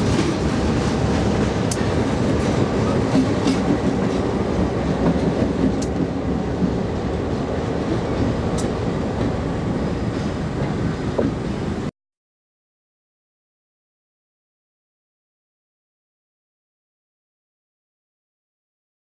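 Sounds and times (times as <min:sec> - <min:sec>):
train wheels rolling on rails: 0:00.0 - 0:11.9.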